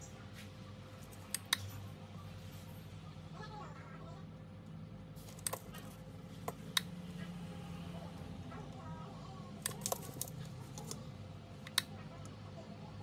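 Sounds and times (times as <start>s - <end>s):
wires being handled: 0.0s - 1.8s, 5.2s - 6.9s, 9.6s - 11.9s.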